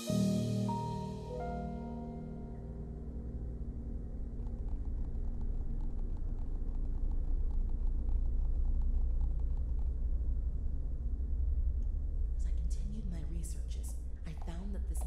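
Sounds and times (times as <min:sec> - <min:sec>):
low steady rumble: 0:00.2 - 0:15.0
faint crackling ticks: 0:03.4 - 0:10.1.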